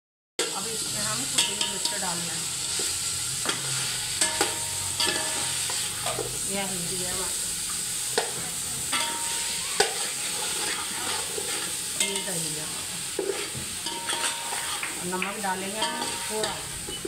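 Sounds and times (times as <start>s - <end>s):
potatoes sizzling in oil: 0.4s - 17.0s
metal skimmer scraping pot: 13.2s - 14.9s.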